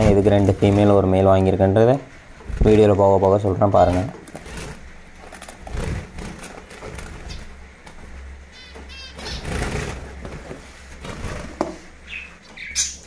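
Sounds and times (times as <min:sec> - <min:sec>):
finches chirping: 0:05.9 - 0:07.7, 0:08.4 - 0:10.1, 0:11.9 - 0:13.0.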